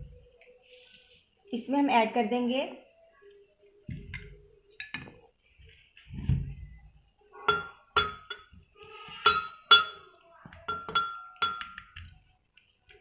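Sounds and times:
soft thump: 6.1s - 6.7s.

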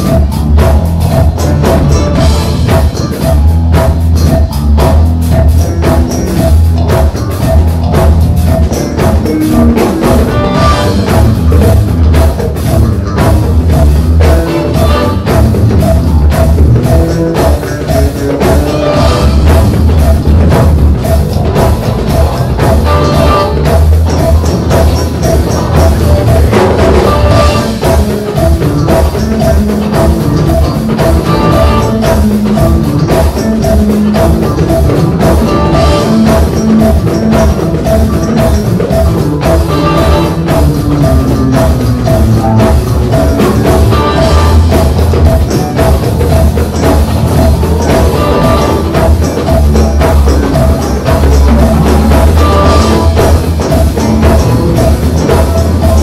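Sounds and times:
electric bass guitar: 0.0s - 56.0s
live band playing: 0.0s - 56.0s.

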